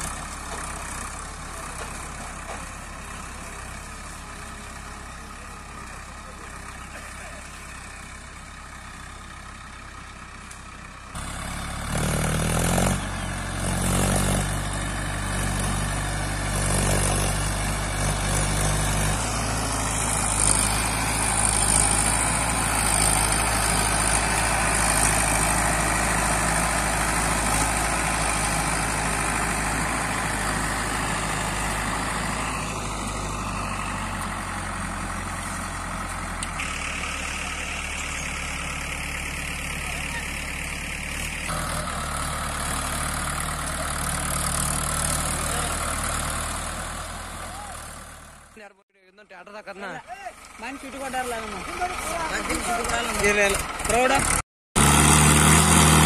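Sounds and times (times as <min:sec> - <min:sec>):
diesel tractor engine revving: 0:00.0 - 0:48.7, 0:49.5 - 0:56.0.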